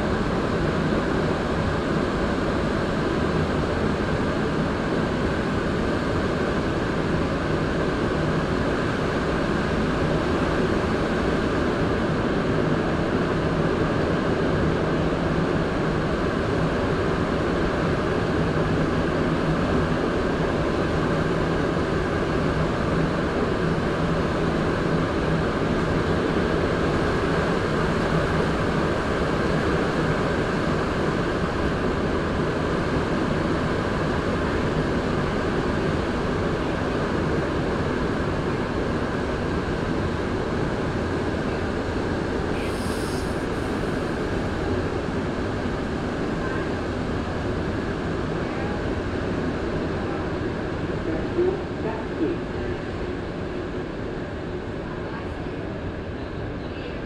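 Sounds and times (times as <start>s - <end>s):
train rumbling through tunnel: 0.0s - 57.0s.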